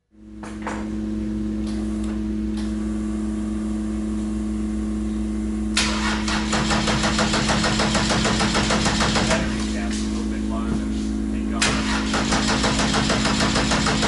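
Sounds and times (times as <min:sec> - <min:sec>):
steady electric hum: 0:00.0 - 0:14.0
engine starter cranking: 0:05.8 - 0:07.0, 0:11.6 - 0:12.7.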